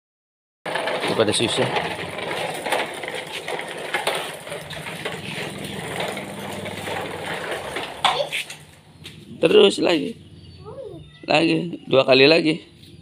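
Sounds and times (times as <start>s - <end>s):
toy trucks rattling over ground: 0.7s - 8.9s.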